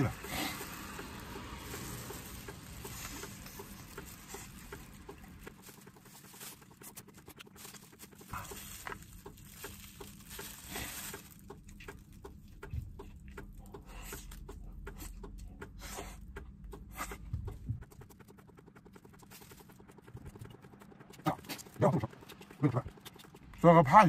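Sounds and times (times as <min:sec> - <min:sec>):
biting and tearing meat: 0:00.0 - 0:13.7, 0:17.8 - 0:23.7
chewing: 0:00.0 - 0:24.0
wet mouth clicks: 0:11.5 - 0:23.6.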